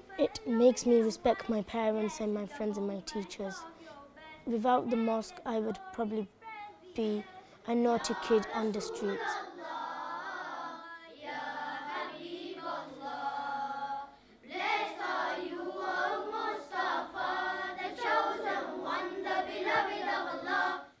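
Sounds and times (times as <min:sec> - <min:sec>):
boys' choir singing: 0:07.9 - 0:20.9.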